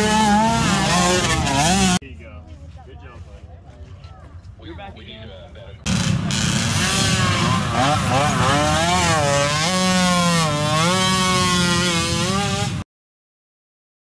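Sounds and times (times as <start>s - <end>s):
small atv engine revving: 0.0s - 2.0s, 5.9s - 12.8s.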